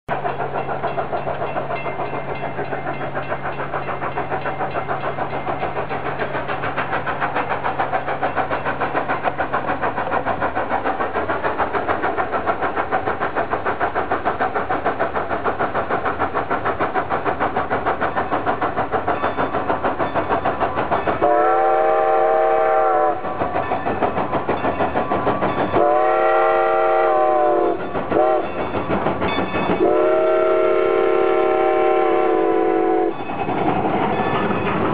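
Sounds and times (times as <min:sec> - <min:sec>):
steam locomotive exhaust chuffs: 0:00.1 - 0:34.9
steam whistle: 0:21.2 - 0:23.4, 0:25.8 - 0:28.5, 0:29.8 - 0:33.2.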